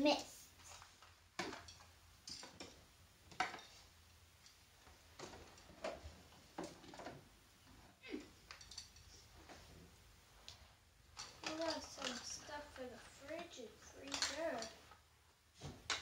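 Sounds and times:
plastic toys clicking and tapping: 0.6s - 3.8s, 8.4s - 9.1s, 11.2s - 15.0s, 15.6s - 16.0s.

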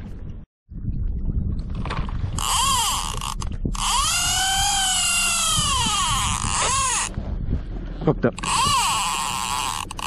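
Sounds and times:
fishing reel drag screaming: 2.4s - 7.1s, 8.4s - 10.0s.

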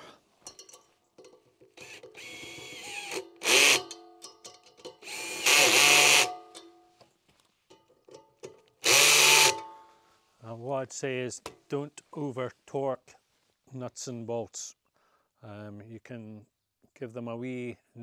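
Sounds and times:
cordless drill running nuts: 1.8s - 3.9s, 5.0s - 6.4s, 8.8s - 9.6s.

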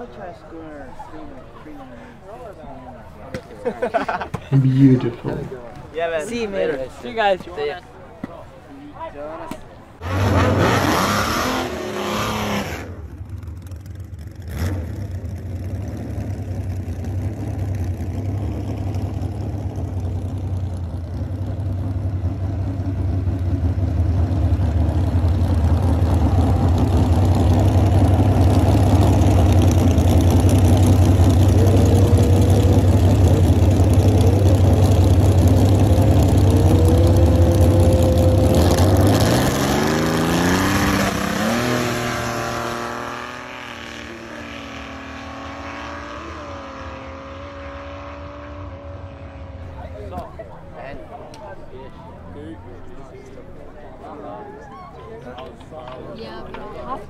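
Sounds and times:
drag car engine revving: 10.0s - 49.9s
drag car engine deep idle: 13.1s - 39.1s.

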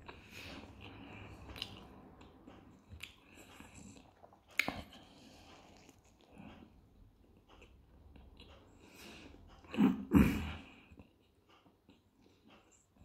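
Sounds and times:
chewing and biting food: 0.0s - 8.9s
wet mouth sounds: 2.9s - 6.3s.

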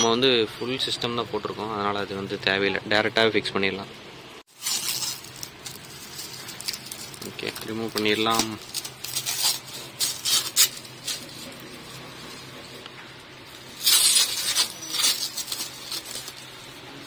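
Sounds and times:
plastic wrap crinkling: 4.5s - 17.0s.

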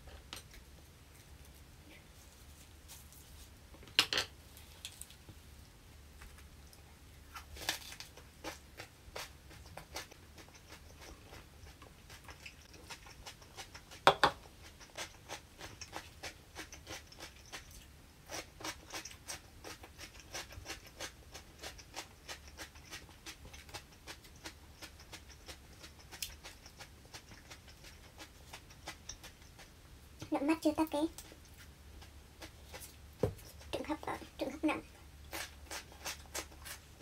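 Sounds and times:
person chewing crunchy food: 7.3s - 29.8s, 31.2s - 33.7s, 35.2s - 37.0s.

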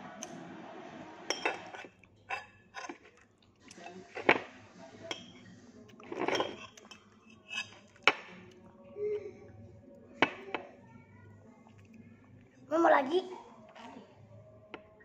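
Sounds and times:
metal spoon scraping a dish: 1.3s - 4.5s, 6.0s - 8.3s.

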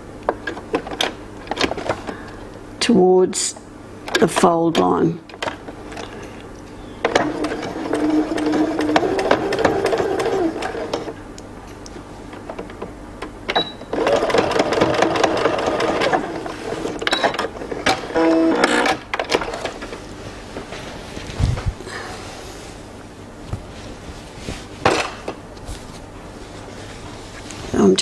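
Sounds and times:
electric sewing machine stitching: 7.1s - 11.1s, 13.9s - 17.0s, 17.9s - 19.7s.

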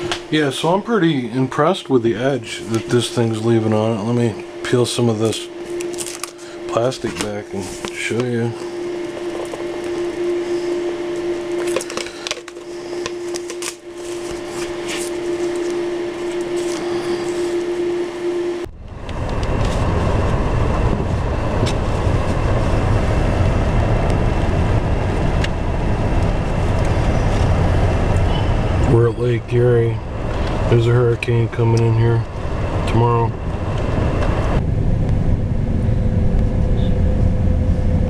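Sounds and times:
steady machine hum: 0.0s - 38.0s
protective film crackling: 5.6s - 8.4s, 11.2s - 17.6s
car cabin low rumble: 18.6s - 38.0s.

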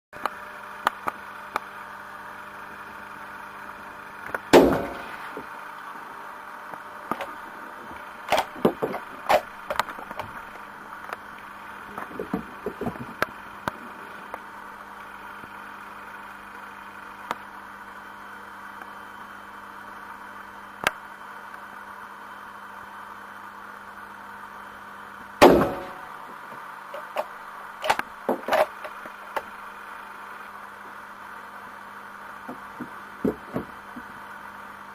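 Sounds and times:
rifle shots: 4.6s - 5.2s, 25.4s - 26.2s.

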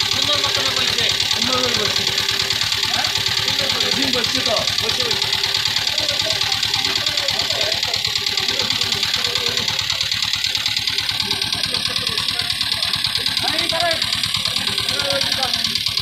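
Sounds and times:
boat engine idling: 0.0s - 16.0s.

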